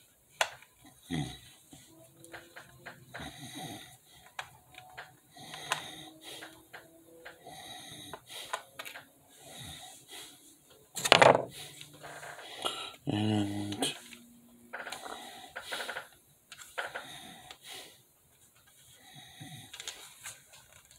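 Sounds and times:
plastic clicking while handled: 0.4 - 0.7, 2.1 - 3.3, 4.2 - 7.4, 8.1 - 9.1, 14.0 - 17.6, 19.7 - 20.9
heavy breathing through the nose: 3.1 - 10.7, 11.5 - 13.0, 14.8 - 16.1, 16.8 - 18.2, 18.8 - 20.4.

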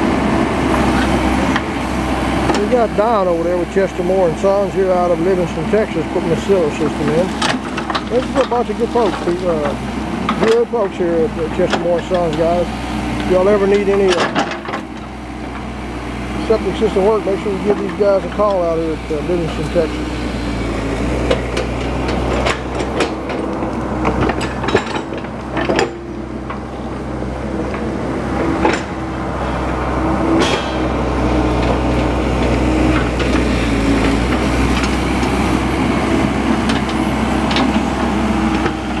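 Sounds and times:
excavator diesel engine running: 0.0 - 39.0
sharp knocks and clanks: 6.2 - 11.0, 13.2 - 15.6, 21.2 - 26.9, 27.6 - 29.3, 30.3 - 35.6.

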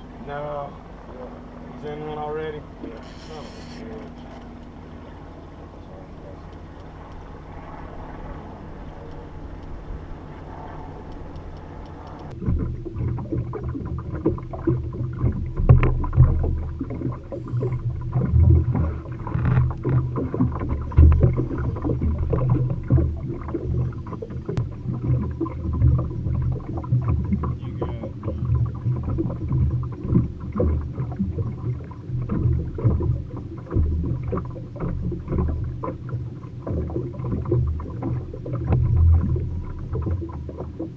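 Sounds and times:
steady low hum: 0.0 - 40.9.

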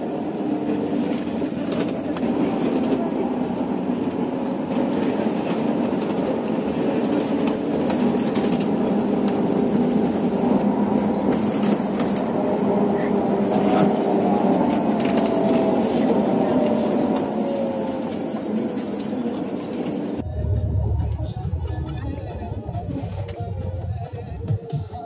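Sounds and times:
bus running noise: 0.0 - 25.0.

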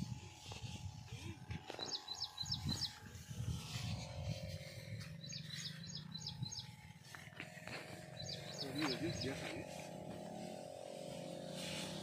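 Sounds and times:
bird chirping: 1.7 - 3.0, 5.0 - 6.8, 8.0 - 9.6.

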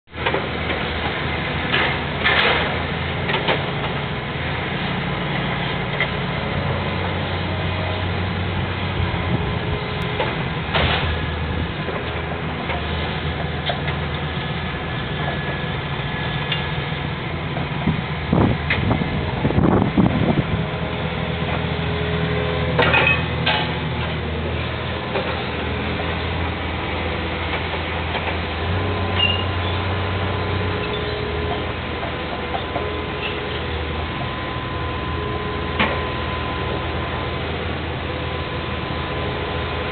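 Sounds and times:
engine idling with low hum: 0.1 - 39.9.

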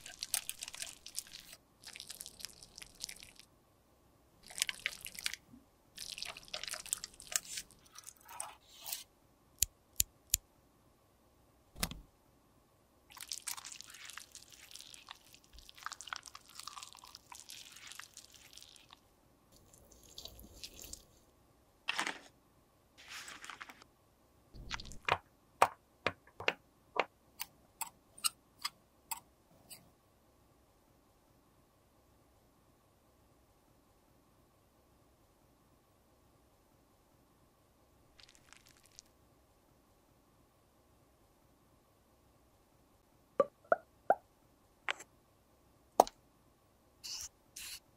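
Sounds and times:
makeup scraping and crumbling: 23.0 - 23.8.

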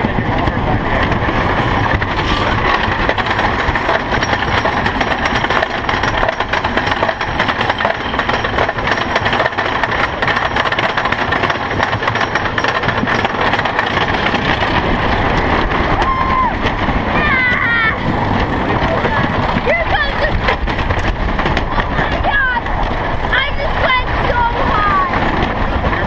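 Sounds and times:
lift chain clatter: 0.2 - 26.0.

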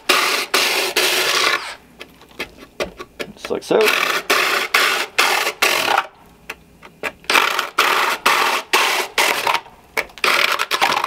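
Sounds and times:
drill grinding into foam: 0.0 - 1.8, 3.8 - 6.1, 7.3 - 9.6.

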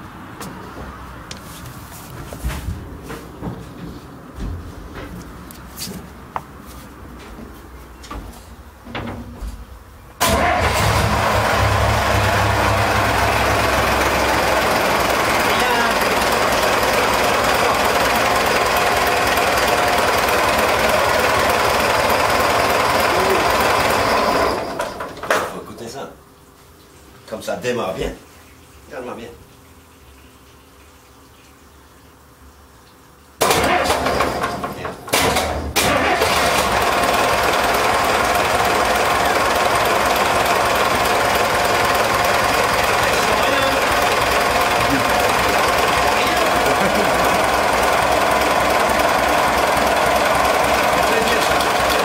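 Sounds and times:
boat engine clattering: 10.2 - 25.3, 33.5 - 52.0.

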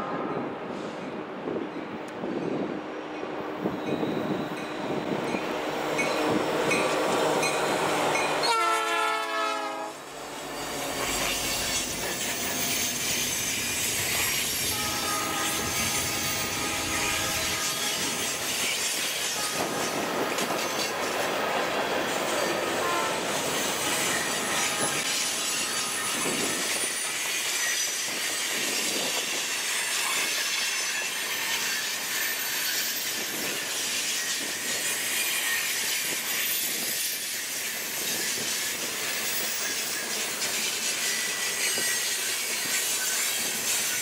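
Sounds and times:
train wheels rumbling on rail: 0.0 - 44.0
high-pitched wheel squeal: 10.2 - 18.4, 29.7 - 44.0.

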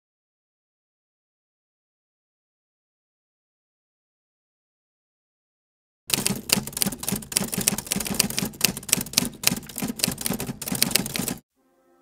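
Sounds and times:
typewriter typing: 6.1 - 11.4.

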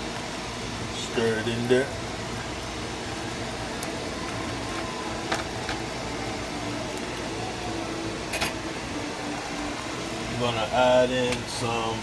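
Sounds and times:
curry simmering hiss: 0.0 - 12.0.

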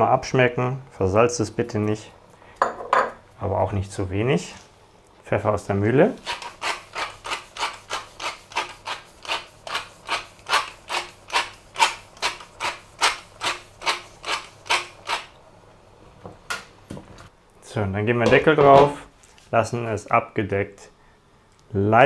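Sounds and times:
pepper mill grinding: 6.2 - 15.3.

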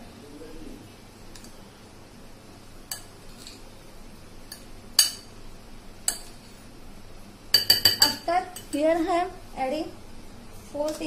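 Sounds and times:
glass bowl clinking: 7.5 - 8.8.

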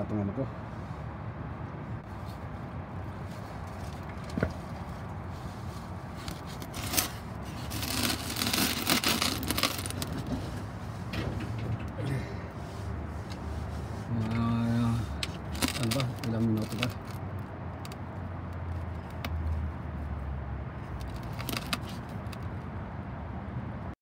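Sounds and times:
scraping rustle: 2.0 - 17.2, 20.9 - 22.4.

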